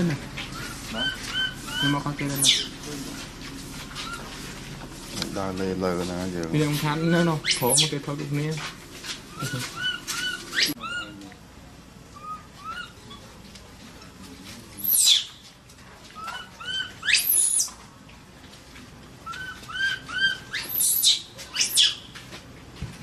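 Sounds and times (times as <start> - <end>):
infant monkey squeaks: 0.5 - 2.8, 4.0 - 4.3, 6.7 - 8.0, 9.3 - 11.2, 12.2 - 13.2, 14.8 - 15.4, 16.2 - 17.8, 19.3 - 22.1
infant monkey shrill screams: 0.6 - 2.7, 7.0 - 8.0, 9.4 - 11.2, 14.8 - 15.4, 16.2 - 17.7, 19.3 - 22.1.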